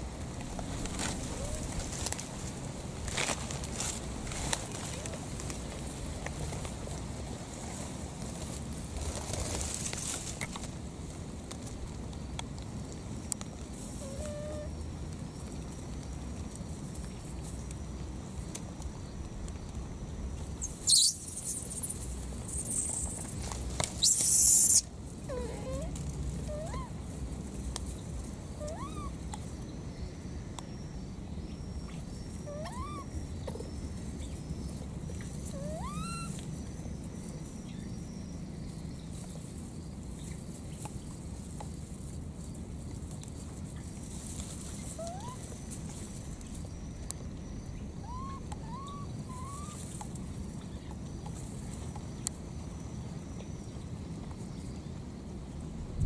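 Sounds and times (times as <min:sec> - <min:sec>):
baby monkey calling: 0:14.0 - 0:14.7, 0:20.6 - 0:23.1, 0:24.0 - 0:25.9, 0:26.5 - 0:26.9, 0:28.6 - 0:29.2, 0:32.5 - 0:33.6, 0:35.4 - 0:36.4, 0:44.9 - 0:45.5, 0:48.0 - 0:49.9.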